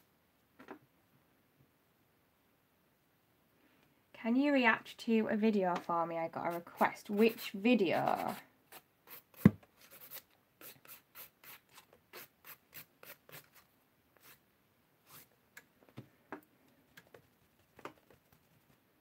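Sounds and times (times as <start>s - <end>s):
nail file rubbing nails: 6.5s - 14.4s, 15.1s - 15.3s.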